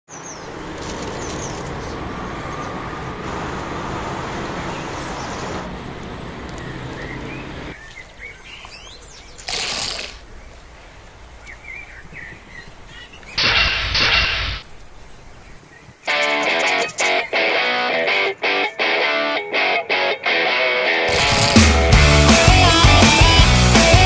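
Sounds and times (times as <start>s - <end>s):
small birds chirping: 0.1s - 2.8s, 4.6s - 5.6s, 6.4s - 18.9s
outdoor background noise: 0.1s - 22.0s
short loud noise burst: 21.1s - 22.4s.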